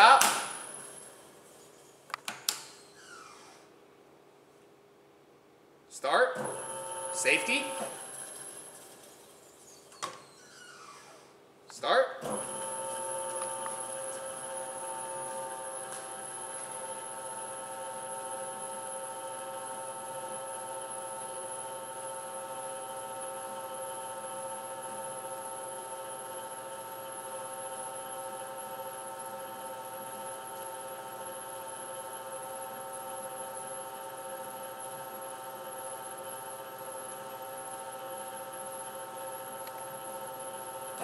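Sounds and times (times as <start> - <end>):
dough mixer motor whine: 6.4 - 9.6, 12.3 - 41.0.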